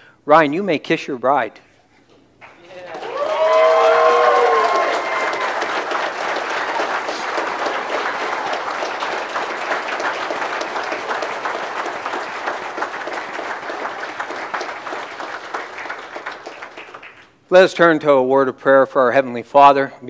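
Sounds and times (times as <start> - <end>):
guests applauding: 2.4 - 17.4
cheering whoops: 2.7 - 8.8.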